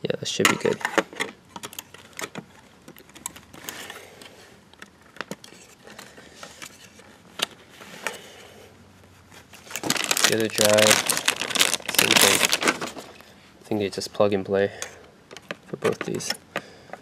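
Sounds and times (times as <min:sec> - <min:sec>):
soft rustle: 0:05.5 - 0:13.6.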